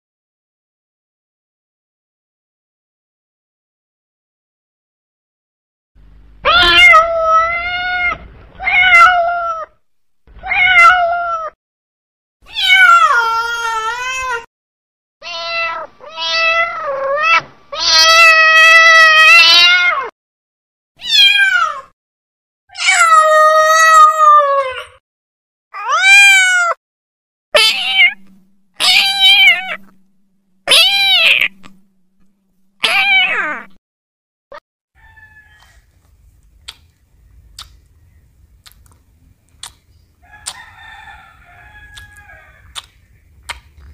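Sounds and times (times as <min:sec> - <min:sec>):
cat meowing: 0:06.4 - 0:09.8, 0:10.4 - 0:11.6, 0:12.5 - 0:14.5, 0:15.2 - 0:20.1, 0:21.0 - 0:21.9, 0:22.7 - 0:25.0, 0:25.8 - 0:26.8, 0:27.6 - 0:33.8, 0:40.4 - 0:42.8.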